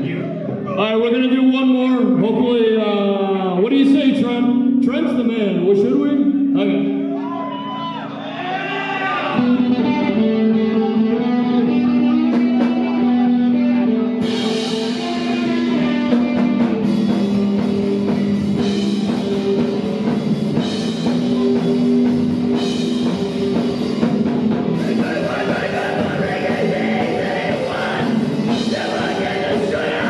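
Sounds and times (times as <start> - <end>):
electric guitar chords: 0.0 - 30.0
drum kit: 11.6 - 13.4, 14.2 - 30.0.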